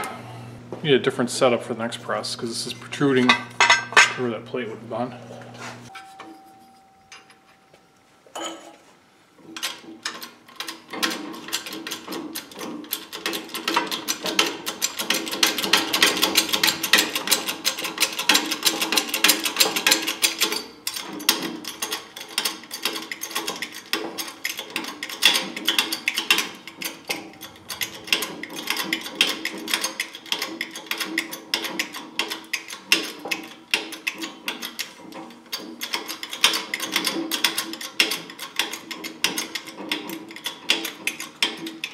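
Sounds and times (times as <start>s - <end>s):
steady machine hum: 0.0s - 8.6s, 14.3s - 19.0s, 25.3s - 30.9s
hydraulic pump clattering: 2.9s - 4.3s, 9.5s - 41.9s.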